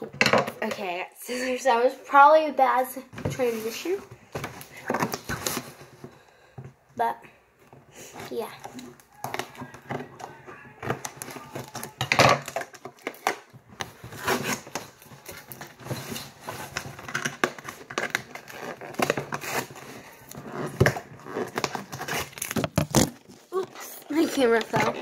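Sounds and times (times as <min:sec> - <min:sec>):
packaging rustling and tearing: 0:10.8 - 0:25.0.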